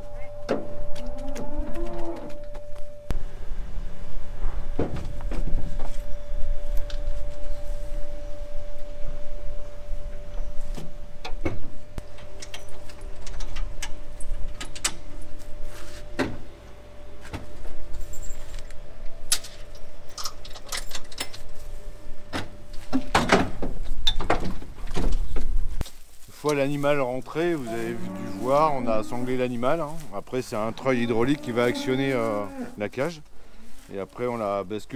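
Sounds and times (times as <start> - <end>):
steady hum: 2.2 - 18.0.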